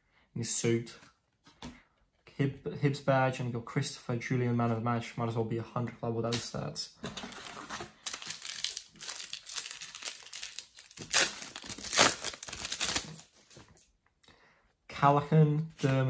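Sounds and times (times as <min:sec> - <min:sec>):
plastic wrapper crinkling: 0:07.3 - 0:13.8
wrapper ripping: 0:07.3 - 0:13.8.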